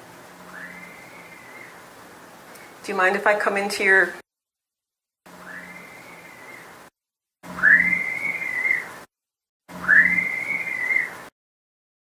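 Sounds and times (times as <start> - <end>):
recorder hiss: 0.0 - 4.2, 5.3 - 9.1, 9.7 - 11.3
high-pitched scream-like wail: 7.5 - 9.0, 9.7 - 11.2.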